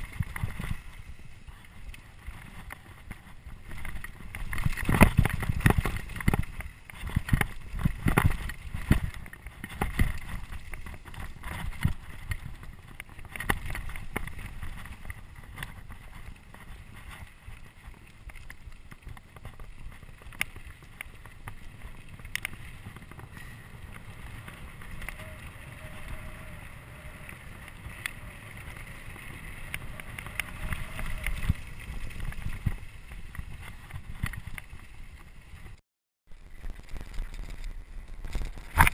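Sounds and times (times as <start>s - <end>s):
bike knocking and rattling: 0.0s - 35.8s
tyres rumbling on gravel: 0.0s - 38.9s
wind buffeting microphone: 21.2s - 35.8s.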